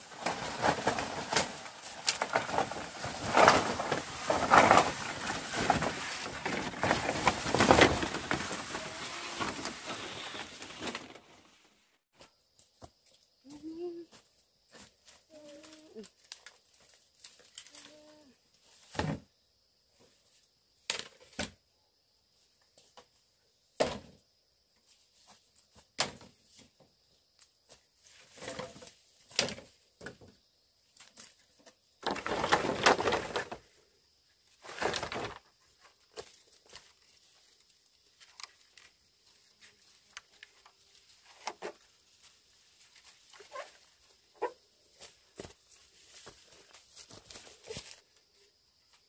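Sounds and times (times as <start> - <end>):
footsteps in dry leaves: 0.0 - 10.9
poles dragged through brush: 0.0 - 11.8.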